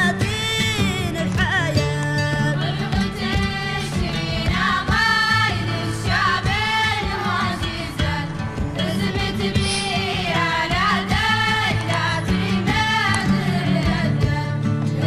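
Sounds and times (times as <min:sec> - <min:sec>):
musical accompaniment: 0:00.0 - 0:15.0.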